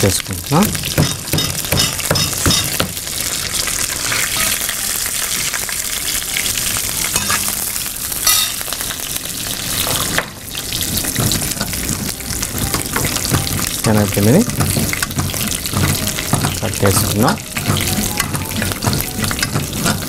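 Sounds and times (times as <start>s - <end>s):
spices sizzling in hot oil: 0.0s - 20.0s
spoon scraping metal pan: 4.0s - 4.7s.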